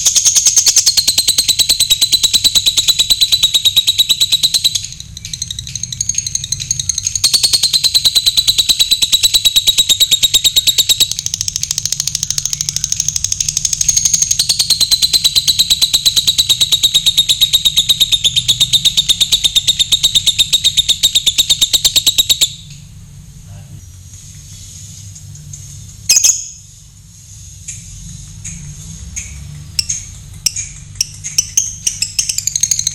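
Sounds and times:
lovebird chattering: 0.0s - 22.7s, 26.1s - 26.6s, 29.8s - 32.9s.

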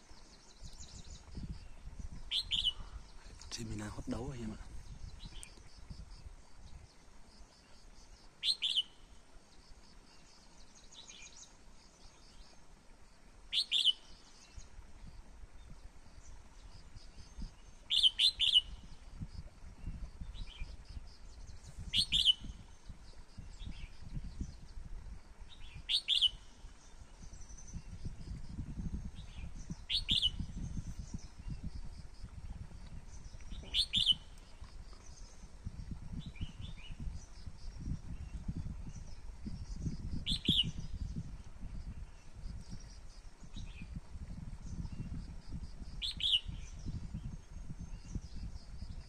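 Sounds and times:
faint bird chirps: 0.1s - 12.7s, 13.5s - 49.0s
bird whistling phrases: 33.6s - 34.2s.

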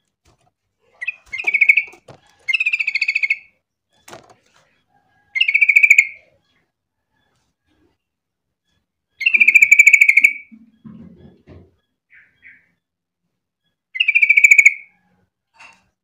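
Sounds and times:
bird chattering calls: 1.0s - 3.5s.

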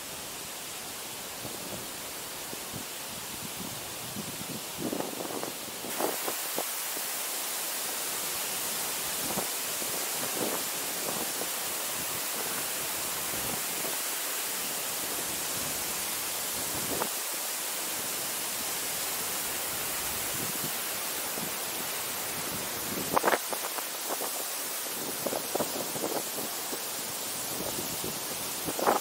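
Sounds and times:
waterfall hissing: 0.0s - 29.0s.

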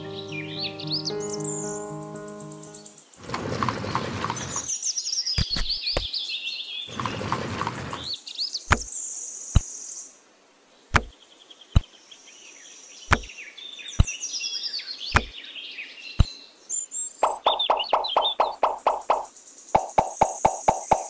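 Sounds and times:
birds chirping: 0.0s - 6.2s, 6.8s - 8.9s, 13.0s - 21.0s.

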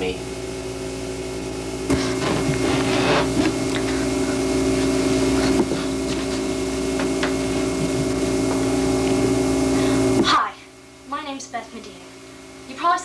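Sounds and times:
steady hum: 0.0s - 13.0s
person stepping and sitting: 1.9s - 3.9s, 4.7s - 8.2s.

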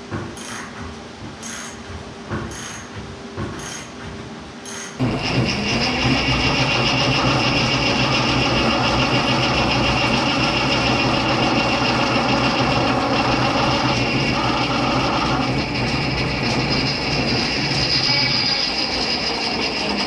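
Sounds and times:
drill press motor hum: 4.7s - 20.0s
drill bit cutting metal whine: 5.0s - 20.0s.

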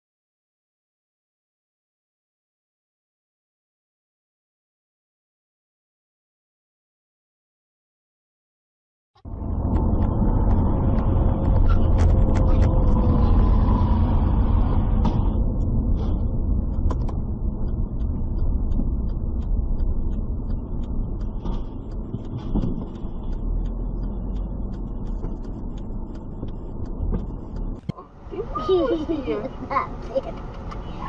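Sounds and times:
car engine and road rumble: 9.2s - 31.0s
faint whine: 9.3s - 31.0s.

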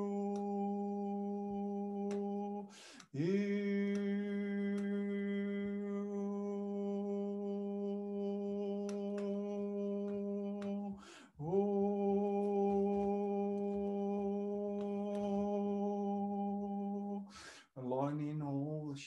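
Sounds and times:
man breathing in: 2.7s - 3.2s, 10.9s - 11.4s, 17.2s - 17.8s.

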